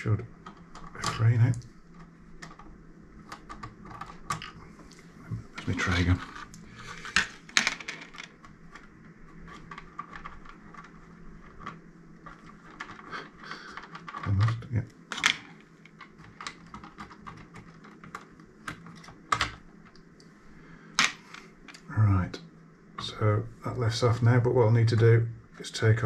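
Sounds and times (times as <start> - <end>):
small parts clicking and knocking: 0.1 - 5.0, 5.6 - 20.2.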